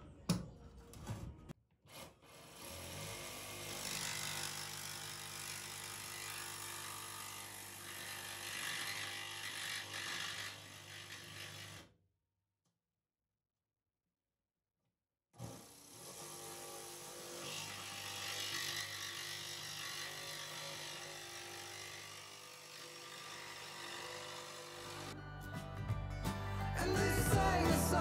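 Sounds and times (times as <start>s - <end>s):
power tool cutting metal: 1.9s - 11.9s, 15.4s - 25.2s.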